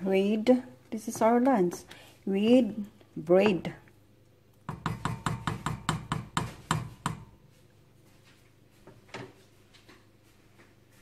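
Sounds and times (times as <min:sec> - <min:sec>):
wooden spoon knocking on metal pot: 0:03.4 - 0:03.8, 0:04.6 - 0:07.4.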